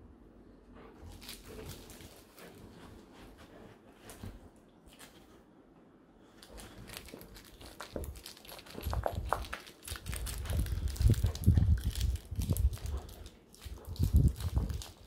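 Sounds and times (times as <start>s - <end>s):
soft crinkling: 0.8s - 5.6s, 6.2s - 15.0s
puppy chewing plush toy: 6.4s - 15.0s.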